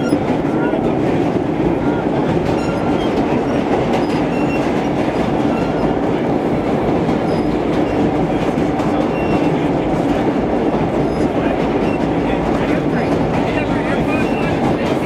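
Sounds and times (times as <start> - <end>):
subway train wheels rumbling on rails: 0.0 - 15.0
faint wheel squeaks: 1.9 - 4.8, 5.4 - 6.0, 7.2 - 8.1, 9.0 - 9.6, 11.0 - 12.2, 13.1 - 14.8.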